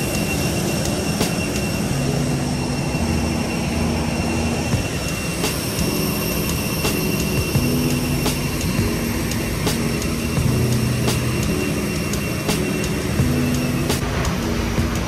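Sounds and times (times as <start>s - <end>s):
airliner cabin engine rumble: 0.0s - 15.0s.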